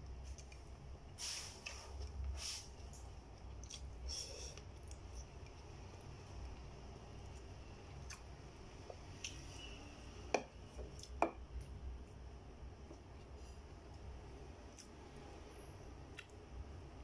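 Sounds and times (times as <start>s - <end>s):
low steady hum: 0.0s - 17.0s
quiet chewing: 3.3s - 9.6s.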